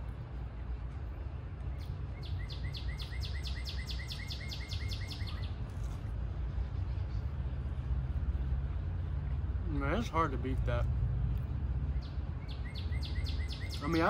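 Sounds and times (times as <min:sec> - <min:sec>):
low outdoor rumble: 0:00.0 - 0:14.0
songbird singing repeated notes: 0:00.1 - 0:08.0, 0:11.4 - 0:14.0.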